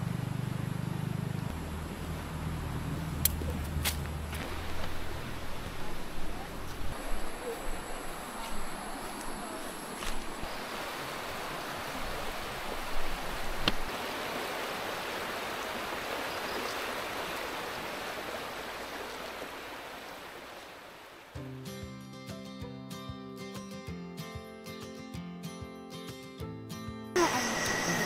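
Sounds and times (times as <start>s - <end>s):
river water rushing: 1.1s - 21.4s, 27.2s - 28.0s
guitar music: 21.4s - 28.0s.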